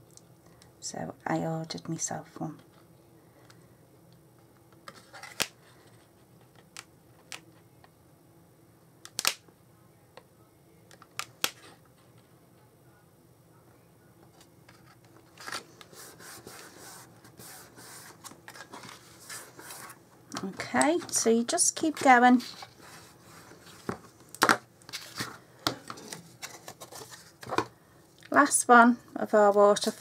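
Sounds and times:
paper rustling and rubbing: 0:14.7 - 0:20.0, 0:21.9 - 0:24.2, 0:26.0 - 0:27.6.

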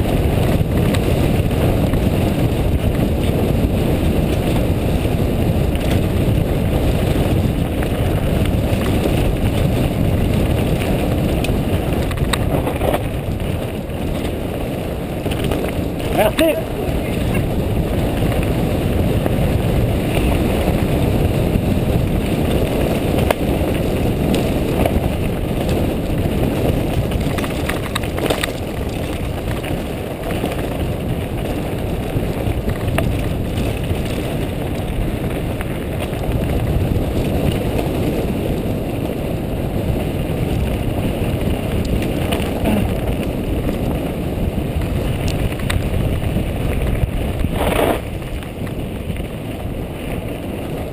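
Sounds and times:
bike rumbling over ground: 0:00.0 - 0:50.9
wind buffeting microphone: 0:00.0 - 0:50.9.

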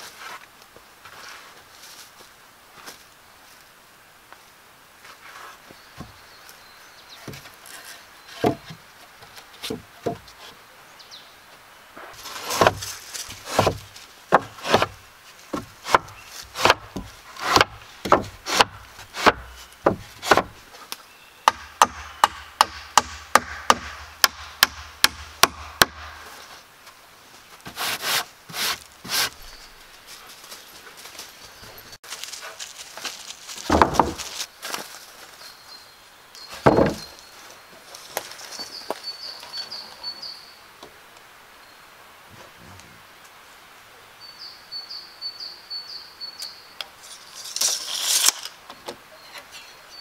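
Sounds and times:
wooden boards knocking on frame: 0:08.4 - 0:08.8, 0:12.4 - 0:12.9, 0:13.5 - 0:15.0, 0:15.6 - 0:20.6, 0:33.7 - 0:34.3, 0:36.6 - 0:37.1.

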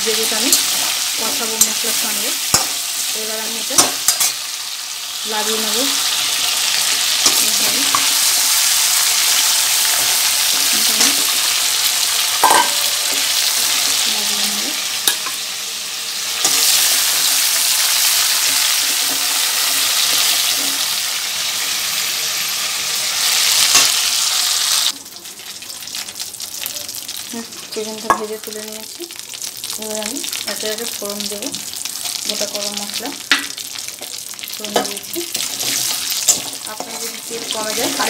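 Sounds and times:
chicken frying in hot oil: 0:00.0 - 0:38.0
metal spoon knocking on pan: 0:12.4 - 0:13.2.

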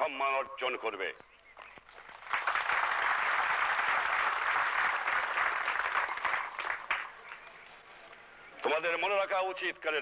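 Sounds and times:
audience applauding: 0:01.9 - 0:07.5.

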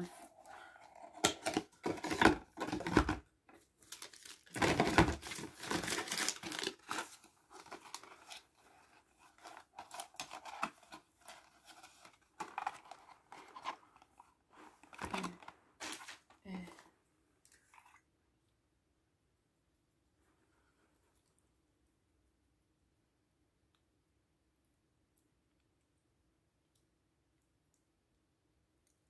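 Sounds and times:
cardboard packaging rustling: 0:00.0 - 0:16.8.

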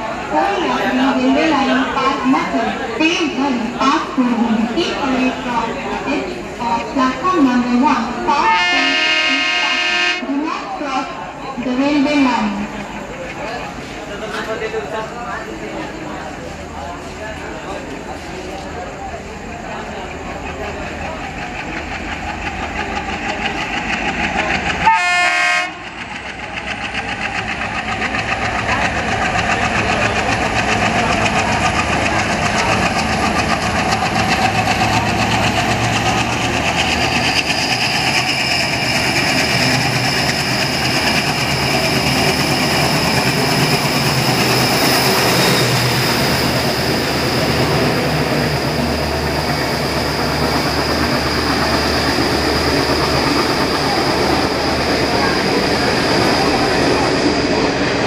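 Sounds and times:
diesel locomotive engine chugging: 0:00.0 - 0:58.0
train horn blast: 0:08.3 - 0:10.4, 0:24.8 - 0:25.8.

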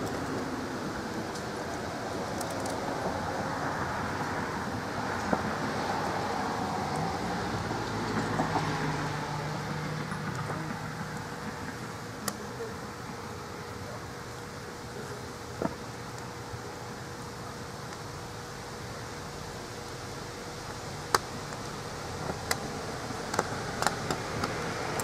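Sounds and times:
flames rushing: 0:19.6 - 0:25.0.

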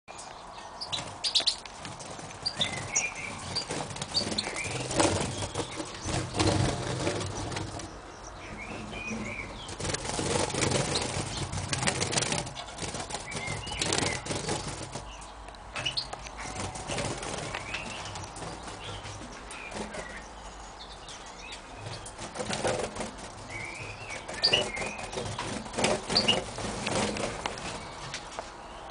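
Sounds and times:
birds flapping wings: 0:00.9 - 0:20.4, 0:21.0 - 0:28.6
high bird chirps: 0:02.4 - 0:06.4, 0:07.2 - 0:09.8, 0:12.5 - 0:22.2, 0:23.4 - 0:26.6.

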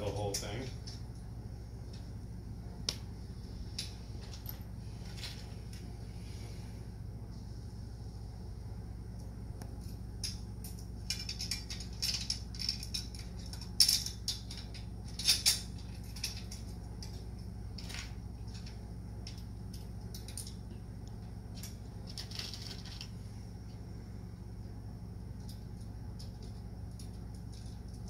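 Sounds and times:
metal nuts and bolts clinking: 0:10.2 - 0:17.2.

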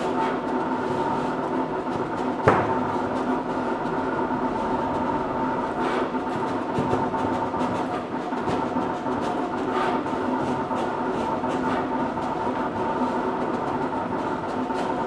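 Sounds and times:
cutting plotter motors whirring: 0:00.0 - 0:15.0.

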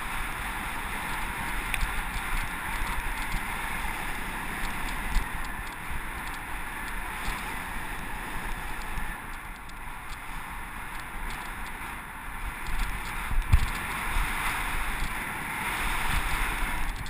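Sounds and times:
bike rattling over bumps: 0:00.0 - 0:15.3
bike tyre noise: 0:00.0 - 0:17.0
wind on microphone: 0:00.0 - 0:17.0.

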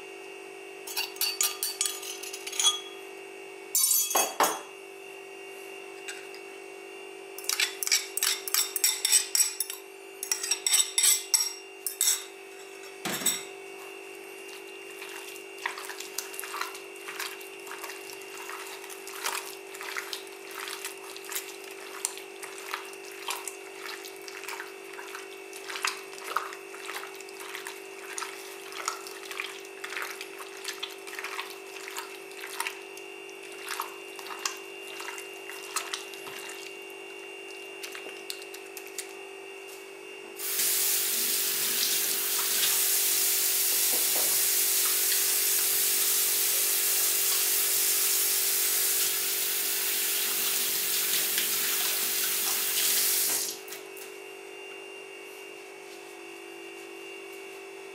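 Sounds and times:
wet squelches of mixing meat: 0:13.8 - 0:39.8
tap water running: 0:40.4 - 0:53.7.

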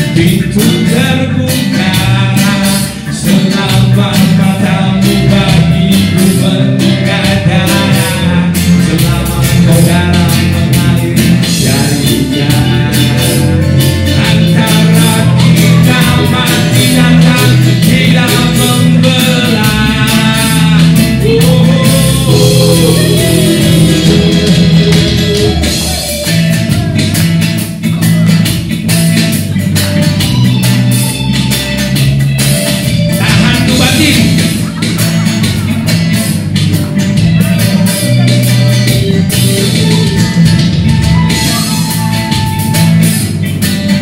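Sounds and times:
man singing: 0:00.0 - 0:28.5, 0:32.6 - 0:44.0
live band playing reggae: 0:00.0 - 0:44.0
flutes: 0:39.5 - 0:43.3.

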